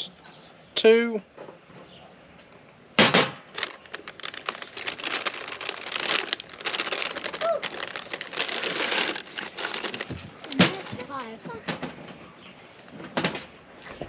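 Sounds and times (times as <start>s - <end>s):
plastic bag crinkling: 3.3s - 11.2s.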